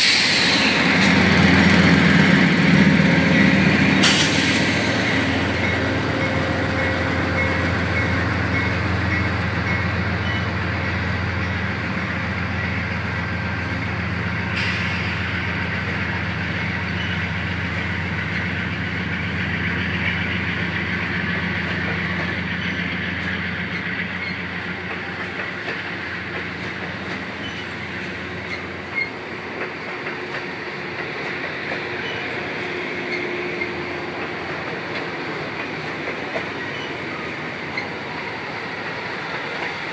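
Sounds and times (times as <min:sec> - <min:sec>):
train wheels rumbling on rail: 0:00.0 - 0:39.9
clicking over rail joints: 0:21.3 - 0:38.0.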